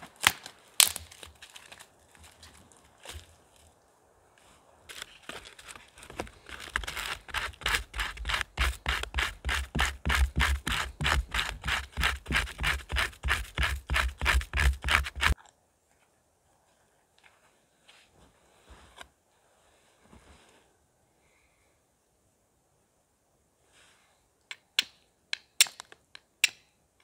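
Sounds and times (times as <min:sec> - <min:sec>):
hand saw cutting wood: 0:06.5 - 0:15.4.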